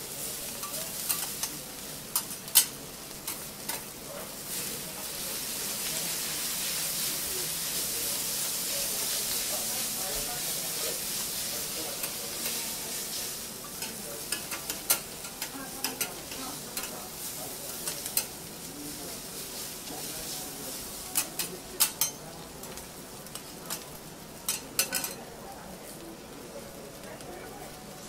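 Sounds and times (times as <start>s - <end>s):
noodles sizzling on a griddle: 0.0s - 28.0s
metal spatulas clicking and scraping: 0.6s - 3.9s, 13.7s - 17.0s, 21.1s - 22.2s, 24.5s - 25.2s.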